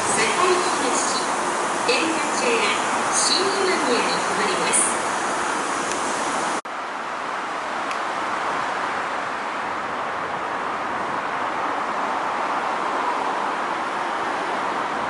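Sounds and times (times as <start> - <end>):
electric train running: 0.0 - 6.6
distant road traffic: 0.0 - 15.0
wind: 0.0 - 15.0.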